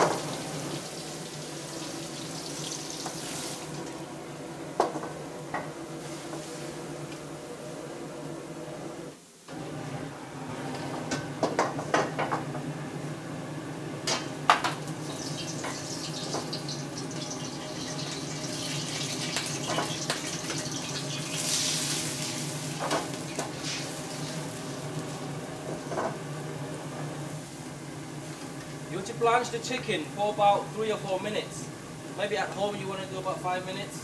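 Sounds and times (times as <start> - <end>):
water hissing and bubbling in wok: 0.0 - 4.1, 5.9 - 7.0, 14.9 - 28.5.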